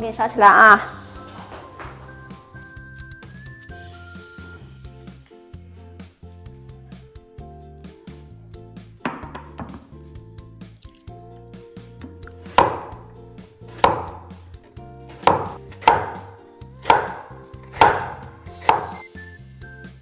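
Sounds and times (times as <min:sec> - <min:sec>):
light background music: 0:00.0 - 0:20.0
cleaver chopping on wooden board: 0:12.5 - 0:13.0, 0:13.7 - 0:14.4, 0:15.1 - 0:19.1.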